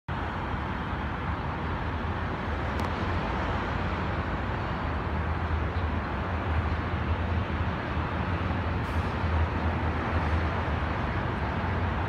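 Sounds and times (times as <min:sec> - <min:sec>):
distant locomotive rumble: 0:00.1 - 0:12.0
outdoor urban noise: 0:00.1 - 0:12.0.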